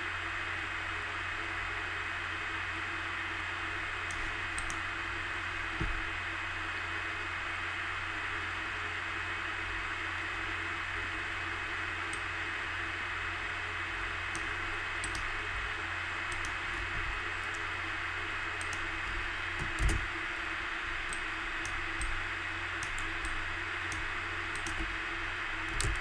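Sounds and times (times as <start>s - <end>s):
hiss and low hum: 0.0s - 26.0s
mouse and keyboard clicks: 4.1s - 4.8s, 14.4s - 15.3s, 16.3s - 17.6s, 18.6s - 20.1s, 21.1s - 22.2s, 22.8s - 24.9s, 25.6s - 26.0s
soft thump: 5.8s - 6.0s.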